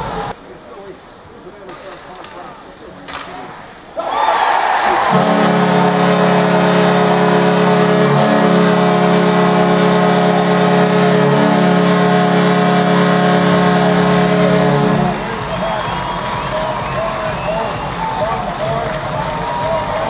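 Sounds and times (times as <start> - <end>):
goal horn blast: 4.8 - 20.0.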